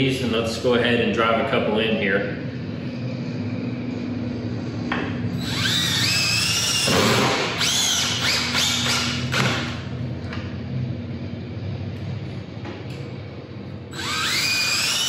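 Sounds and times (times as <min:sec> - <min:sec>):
cordless drill driving screws: 0:05.4 - 0:09.5, 0:14.0 - 0:15.0.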